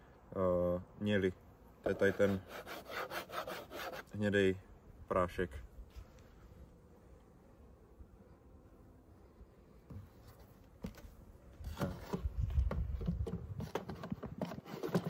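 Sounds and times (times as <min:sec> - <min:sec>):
wood rubbing and scraping: 0:01.8 - 0:04.1, 0:10.0 - 0:15.0.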